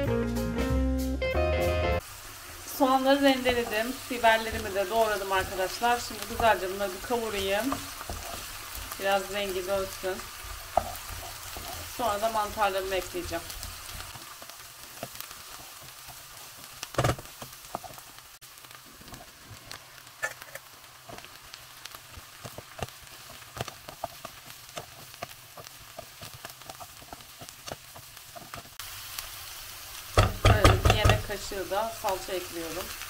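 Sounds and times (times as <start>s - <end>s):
vegetables sizzling in oil: 0.0s - 33.0s.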